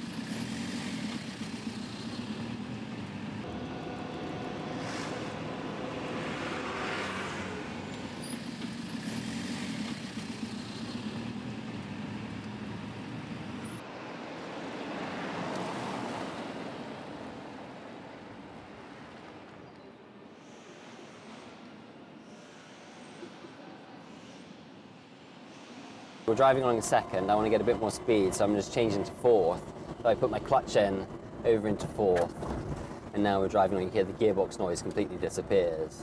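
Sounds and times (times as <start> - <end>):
vehicle passing: 0.0 - 19.5
street traffic: 0.0 - 36.0
tyre and road noise: 0.0 - 36.0.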